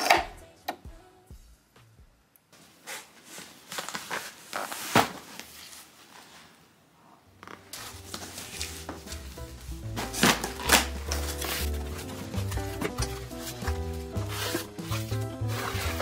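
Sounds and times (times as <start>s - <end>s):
soft music: 0.0s - 1.9s, 7.5s - 16.0s
cardboard box scraping and knocking: 9.9s - 16.0s.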